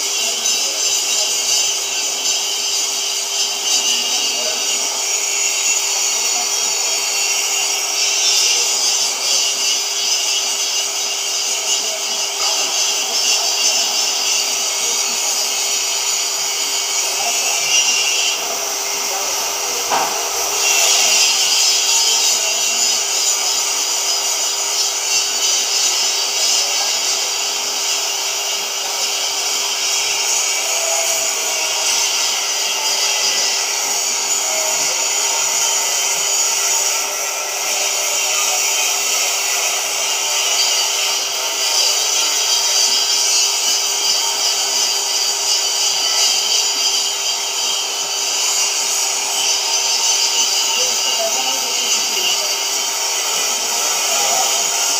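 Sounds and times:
cutting torch hissing: 0.0s - 54.9s.

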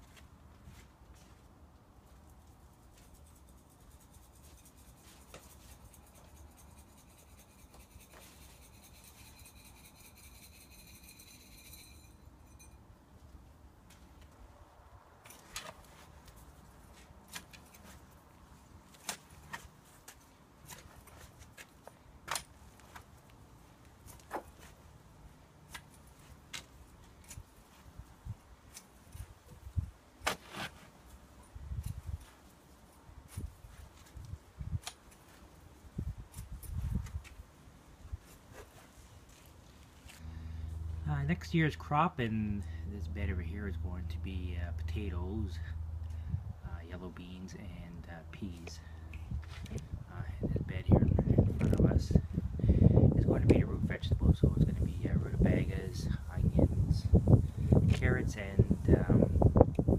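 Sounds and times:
low wind rumble: 42.4s - 46.9s, 49.1s - 59.9s.

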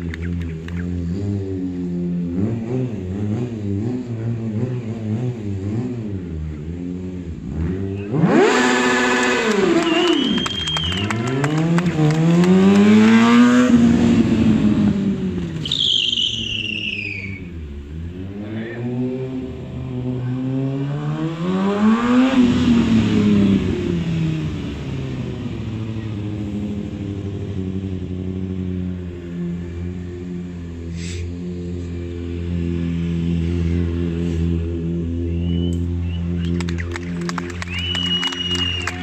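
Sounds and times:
motorcycle engine revving: 0.0s - 39.0s
high falling squeal: 15.6s - 17.6s.

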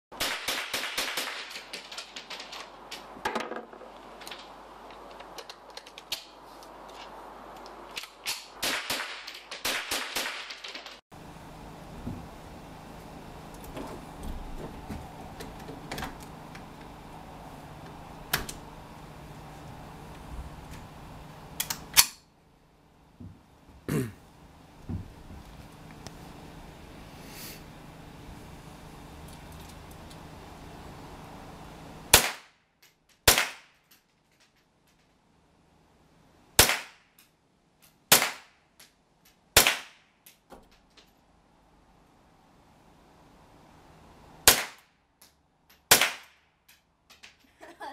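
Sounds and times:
rifle shots: 0.2s - 2.7s, 8.4s - 11.0s, 32.1s - 32.5s, 36.6s - 37.0s
small metallic clicks and clatter: 3.9s - 8.5s.

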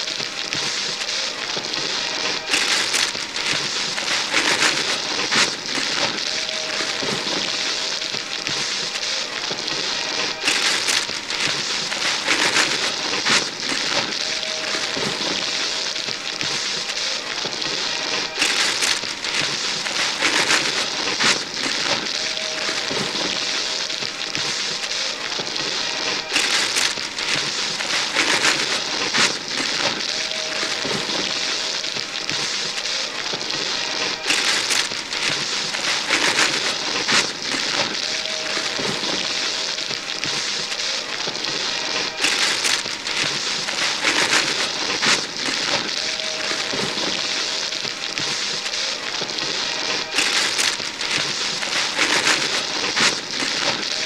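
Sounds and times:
wrapping paper tearing: 0.0s - 54.0s.

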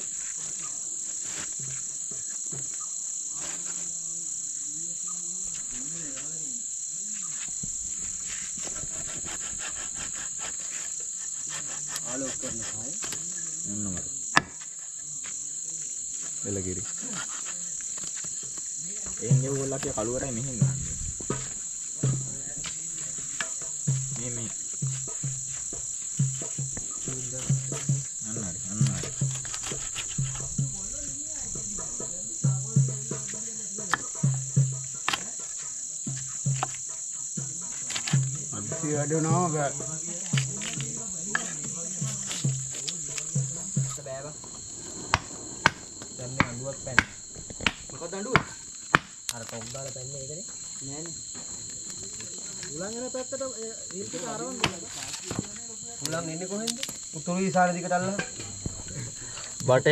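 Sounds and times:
night insects chirring: 0.0s - 59.9s
knife chopping on wooden board: 45.1s - 49.2s.

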